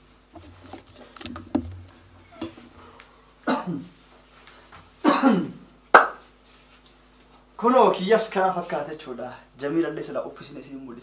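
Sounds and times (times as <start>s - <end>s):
person coughing: 3.4s - 3.9s, 5.0s - 5.6s.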